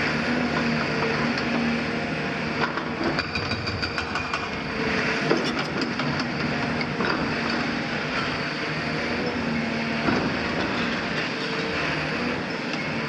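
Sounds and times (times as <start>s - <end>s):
excavator diesel engine running: 4.0s - 13.0s.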